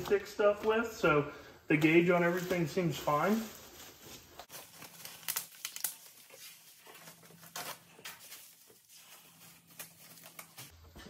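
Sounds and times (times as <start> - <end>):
plastic bag crinkling: 1.9 - 10.7.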